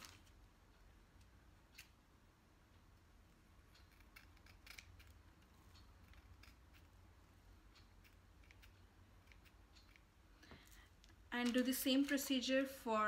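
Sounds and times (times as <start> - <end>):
scissors snipping hair: 3.8 - 7.0.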